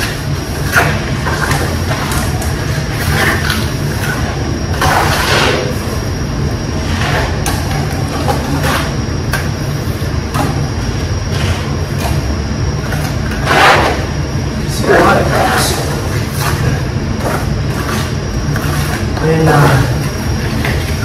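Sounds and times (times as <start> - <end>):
ventilation rumble: 0.0 - 21.0
trowel scraping mortar: 15.5 - 19.3.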